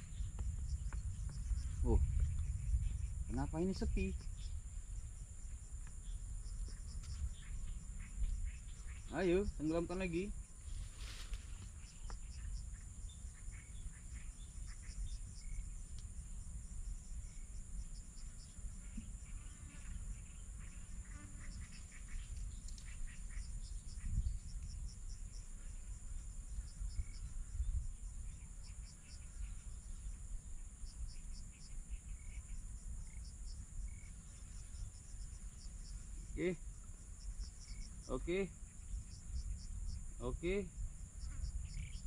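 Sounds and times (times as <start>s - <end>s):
low rumble: 0.0s - 5.5s
insect high hum: 0.0s - 42.0s
rapid insect chirps: 0.0s - 42.0s.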